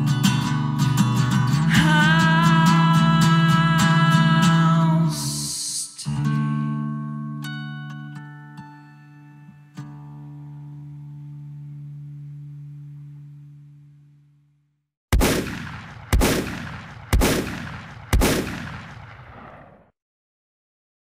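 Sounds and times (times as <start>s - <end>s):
acoustic guitar chord ringing: 0.0s - 14.4s
loud gunshots: 15.1s - 19.9s.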